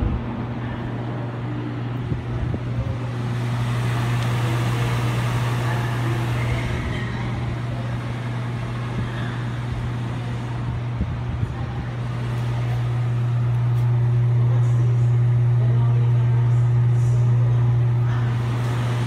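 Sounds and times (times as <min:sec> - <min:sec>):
air conditioner blower rushing: 0:00.0 - 0:19.0
low hum: 0:00.0 - 0:19.0.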